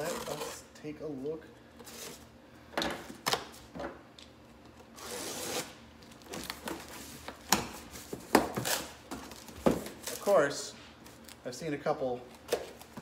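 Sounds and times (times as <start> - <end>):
packing tape tearing: 5.0 - 6.8, 8.3 - 10.4.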